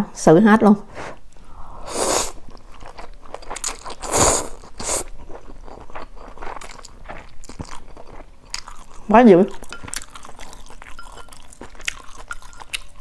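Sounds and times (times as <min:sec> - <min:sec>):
person slurping noodles: 0:01.0 - 0:02.4, 0:03.6 - 0:05.1
wet chewing clicks: 0:02.5 - 0:13.0.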